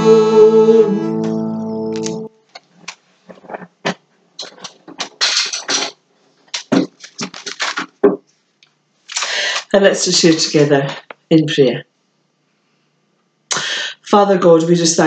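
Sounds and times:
rustles taps and scrapes: 2.5 - 9.2.

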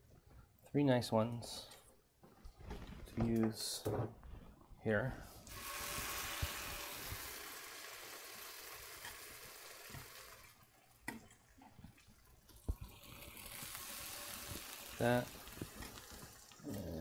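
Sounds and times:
fruit sizzling in a skillet: 5.4 - 10.6, 12.7 - 17.0.

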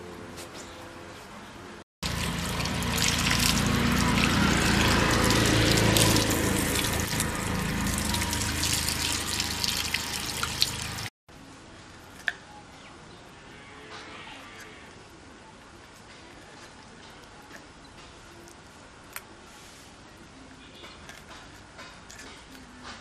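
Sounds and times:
water running and splashing: 2.0 - 11.1
water spilling on concrete floor: 2.0 - 11.1.

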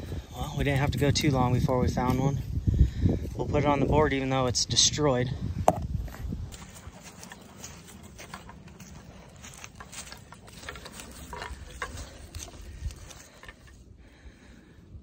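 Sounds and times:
footsteps through dry grass: 5.0 - 14.7.

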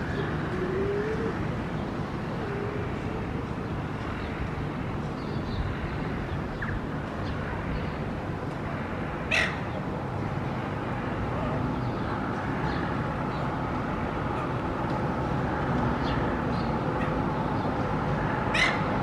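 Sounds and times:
street traffic noise: 0.0 - 19.0
gull squawk: 9.3 - 9.6, 18.6 - 18.8.

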